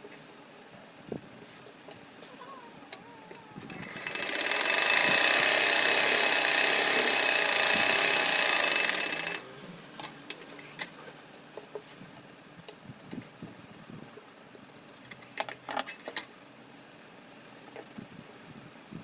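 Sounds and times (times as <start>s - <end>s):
sewing machine running: 3.7s - 9.4s.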